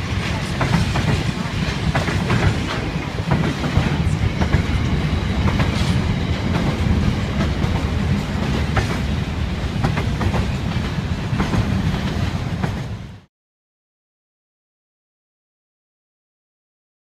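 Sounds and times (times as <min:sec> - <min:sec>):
train carriages rumbling: 0:00.0 - 0:13.3
wheels clacking on rails: 0:00.0 - 0:13.3.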